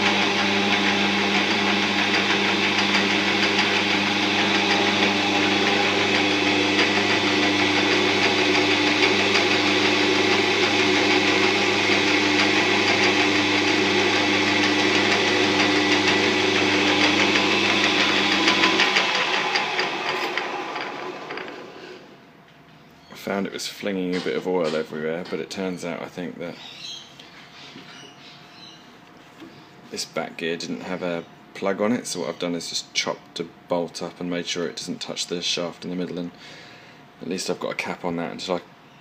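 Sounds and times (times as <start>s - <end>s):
lathe motor hum: 0.0s - 22.1s.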